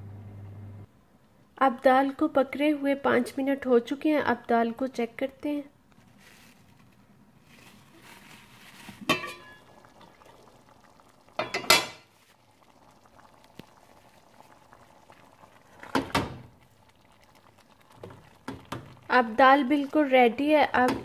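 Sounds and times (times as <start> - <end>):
pot bubbling: 7.4 - 21.0
metal pot lid clinking: 9.0 - 9.7, 11.4 - 12.0
metal lid clattering: 9.1 - 9.6.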